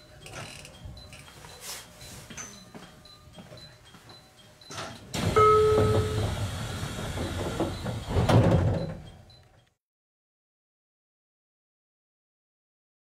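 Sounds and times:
rush of air from train doors: 5.2 - 8.2
two-pitch tone: 5.3 - 6.5.

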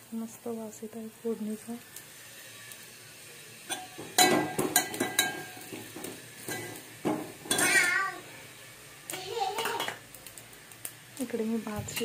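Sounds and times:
spoon scraping and clinking in pot: 3.7 - 5.8, 6.4 - 6.8.

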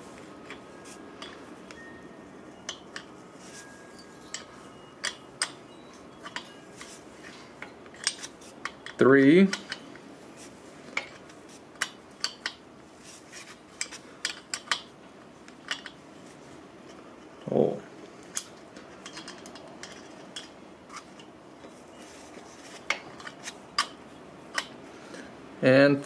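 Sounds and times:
wrench metal clicks and clinks: 13.8 - 14.9.

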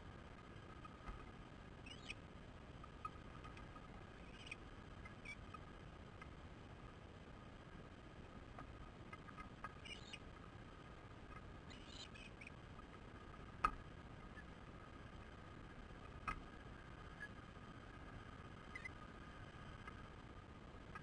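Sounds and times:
low steady hiss: 0.0 - 21.0
high squeaky chirps: 1.8 - 2.2, 9.8 - 10.2.

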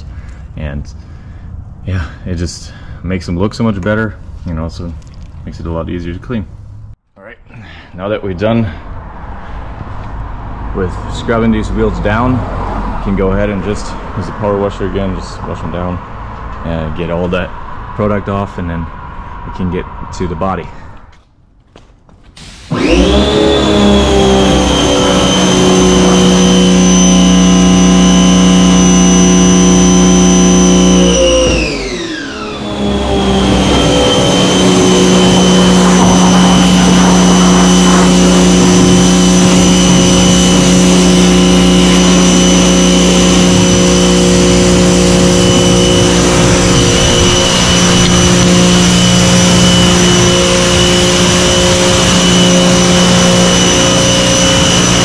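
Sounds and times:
pressure washer motor whine: 22.4 - 55.0
water spraying from wand: 33.4 - 42.2.

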